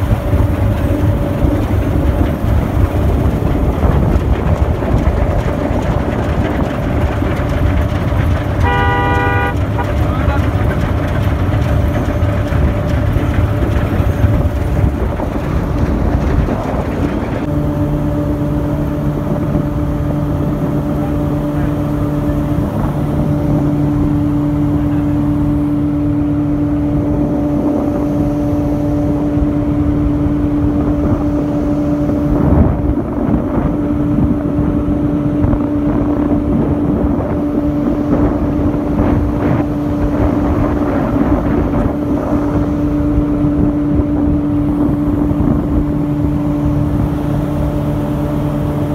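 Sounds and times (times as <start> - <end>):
combine harvester droning: 0.0 - 48.9.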